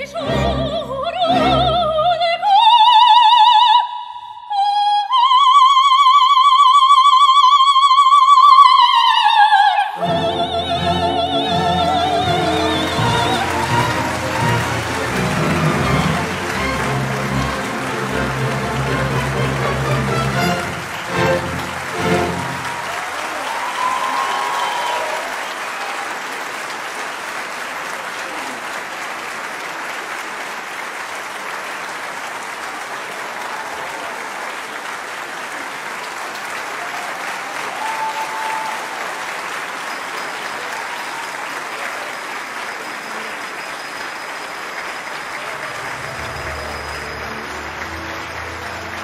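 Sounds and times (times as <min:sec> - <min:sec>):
audience applauding: 0:10.0 - 0:49.0.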